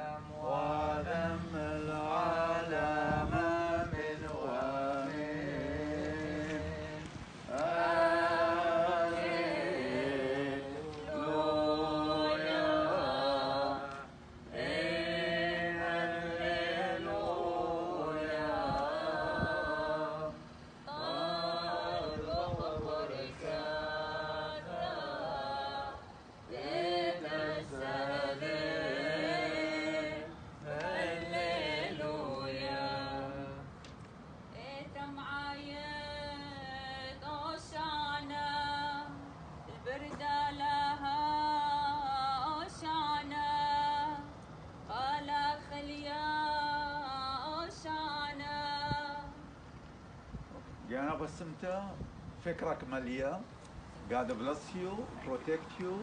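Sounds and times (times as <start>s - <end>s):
group chanting a hymn: 0.0s - 33.8s.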